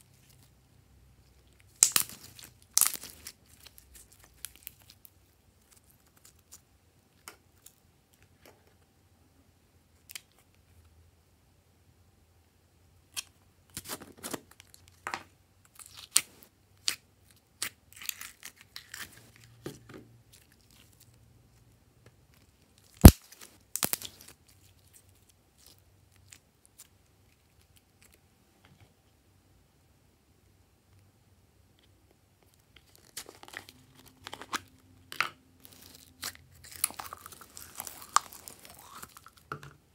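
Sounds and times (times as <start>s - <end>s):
slime sticky crackles: 35.6s - 39.5s.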